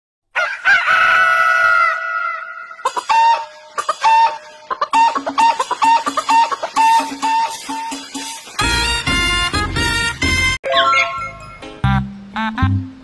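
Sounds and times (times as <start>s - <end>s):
rooster crowing: 0.3s - 4.3s
light tune with steady beat: 2.9s - 10.6s.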